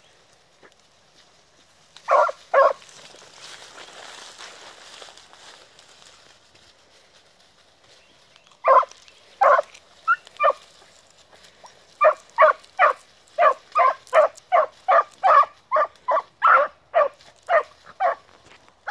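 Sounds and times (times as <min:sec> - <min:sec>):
hounds baying: 0:02.0 - 0:03.0, 0:08.5 - 0:18.9.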